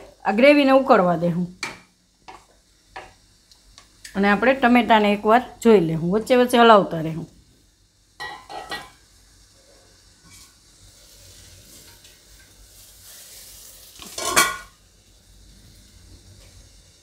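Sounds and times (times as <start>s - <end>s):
soft sizzle: 0.0s - 17.0s
spatula scraping and stirring: 9.7s - 14.7s.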